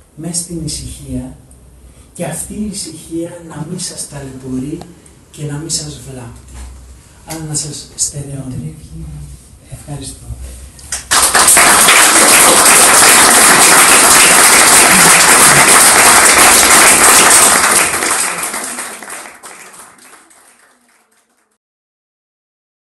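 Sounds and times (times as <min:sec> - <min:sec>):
audience applauding: 0:10.9 - 0:21.6.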